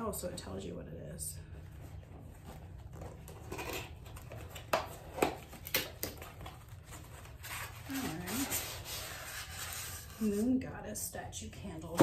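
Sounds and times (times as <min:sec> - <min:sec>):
cardboard box rustling: 0:06.2 - 0:10.2.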